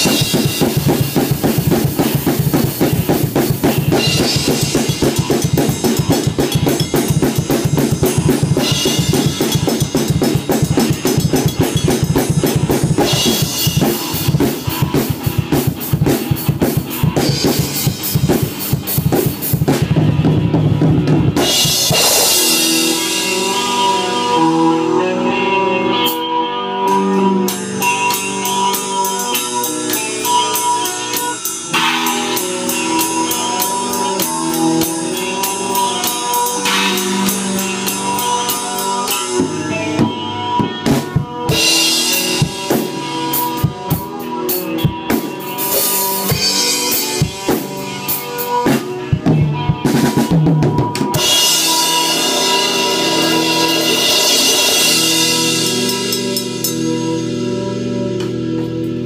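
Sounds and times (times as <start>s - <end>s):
drum fills: 0.0s - 24.4s, 28.1s - 57.1s
rock band playing: 0.0s - 59.0s
crashing cymbals: 51.2s - 57.3s.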